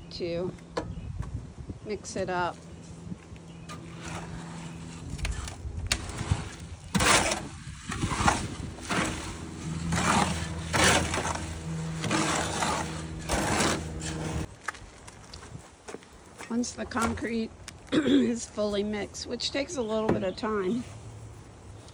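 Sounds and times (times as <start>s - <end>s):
low mechanical hum: 0.0s - 21.9s
hoe scraping wet concrete: 3.7s - 14.5s.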